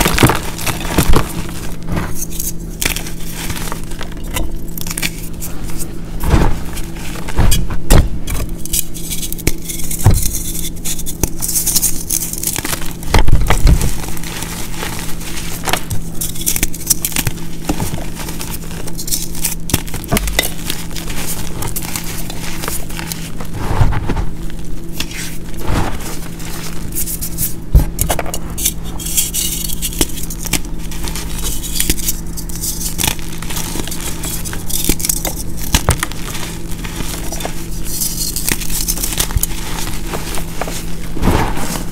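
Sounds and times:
hands crunching chalk blocks: 8.6s - 23.6s, 25.0s - 41.9s.

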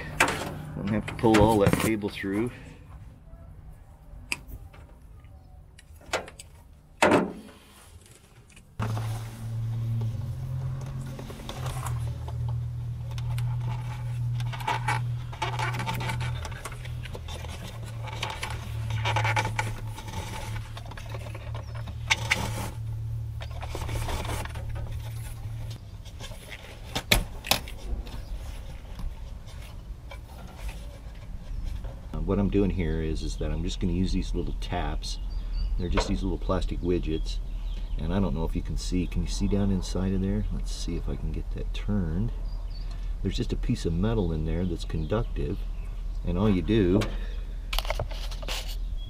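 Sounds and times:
wire rustling and scraping: 7.4s - 32.2s, 46.7s - 48.9s.

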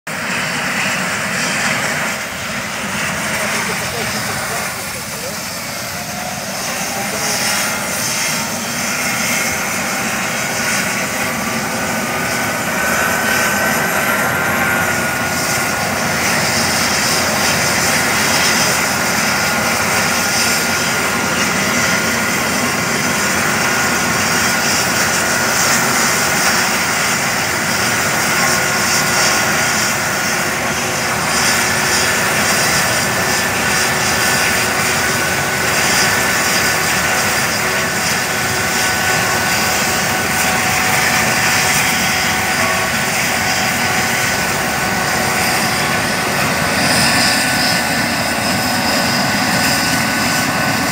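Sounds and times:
helicopter rotor and turbine: 0.1s - 50.9s
high turbine whine: 0.1s - 50.9s.

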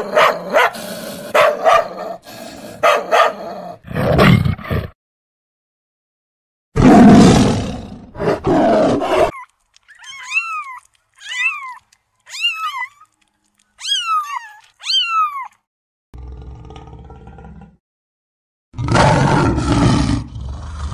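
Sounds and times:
tiger roaring: 6.8s - 9.3s, 16.2s - 17.8s, 18.8s - 20.9s
kittens mewing: 9.3s - 15.6s.

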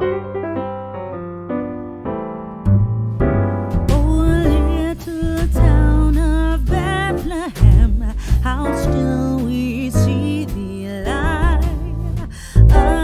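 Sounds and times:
solo piano: 0.0s - 13.0s
band with deep bass: 2.7s - 13.0s
person singing: 3.9s - 13.0s.

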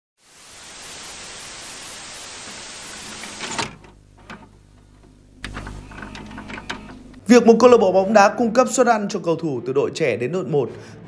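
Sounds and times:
static hiss: 0.2s - 6.2s.

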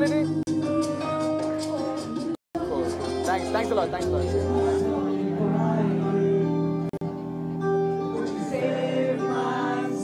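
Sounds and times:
music with singing: 0.0s - 10.0s.

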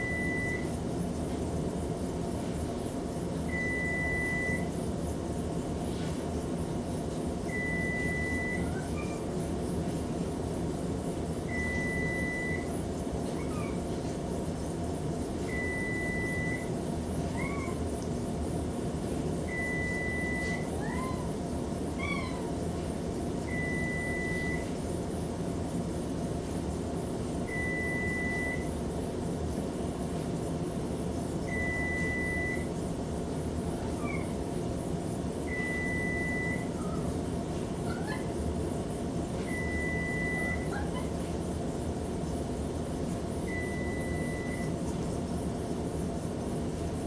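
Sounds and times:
oven timer beeping: 0.0s - 0.7s, 3.5s - 4.7s, 7.5s - 8.8s, 11.5s - 12.7s, 15.5s - 16.8s, 19.5s - 20.7s, 23.5s - 24.8s, 27.4s - 28.8s, 31.5s - 32.8s, 35.5s - 36.8s, 39.4s - 40.8s, 43.4s - 44.8s
cat chirping: 13.3s - 13.9s, 17.3s - 17.8s, 22.0s - 22.6s, 33.8s - 34.4s.

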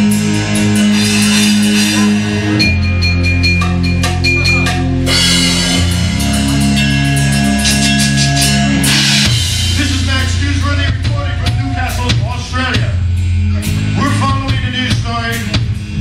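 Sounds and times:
drum kit pounding: 0.0s - 16.0s
live rock band playing: 0.0s - 16.0s
cymbal crashes: 5.1s - 10.2s.

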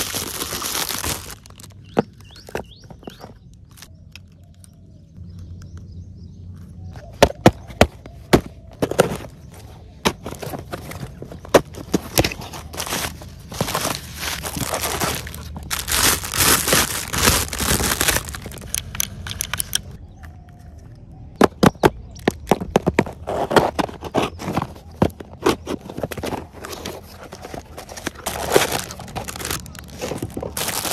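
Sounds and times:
plastic wrap crinkling: 0.0s - 1.8s, 12.6s - 18.9s, 27.4s - 30.9s.

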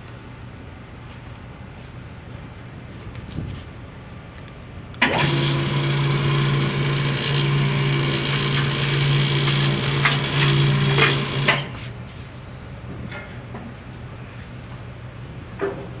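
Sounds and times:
power drill running: 5.0s - 11.8s.

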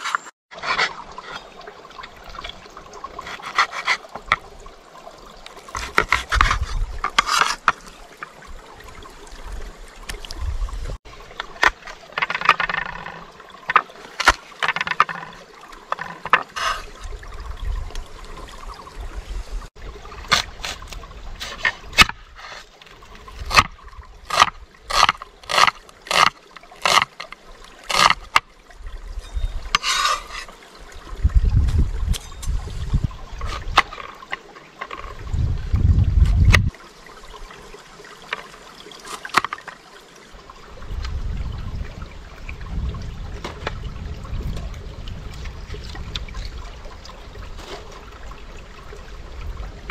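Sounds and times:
water trickling and splashing: 0.0s - 49.9s
rubbing and scraping handling: 3.2s - 4.1s, 5.8s - 7.8s, 14.1s - 17.0s, 29.7s - 30.6s.

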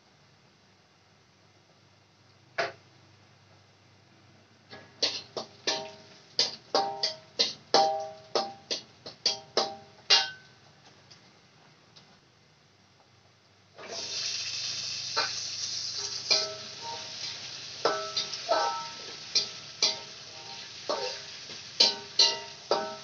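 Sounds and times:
metal spatula clanking in wok: 4.8s - 10.6s, 16.0s - 23.0s.

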